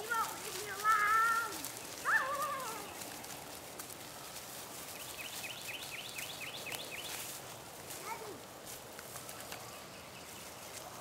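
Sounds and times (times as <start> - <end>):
puppies rustling in grass: 0.0 - 11.0
bird singing: 5.0 - 7.2.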